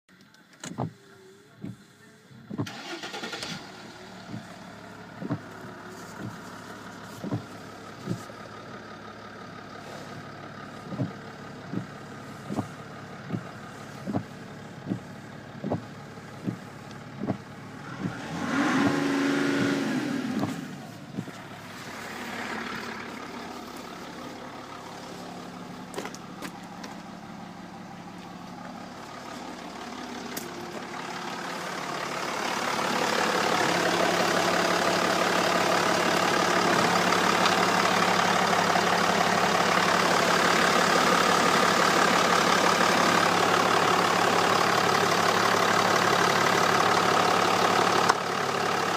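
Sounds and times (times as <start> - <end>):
diesel engine idling and revving: 0.1 - 48.9
starter clicks: 15.6 - 18.2.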